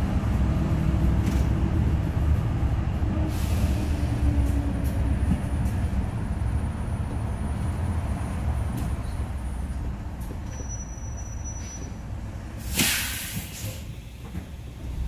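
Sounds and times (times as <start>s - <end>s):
bus engine rumbling: 0.0s - 15.0s
air brakes hissing: 3.3s - 4.2s, 10.5s - 12.0s, 12.6s - 14.8s.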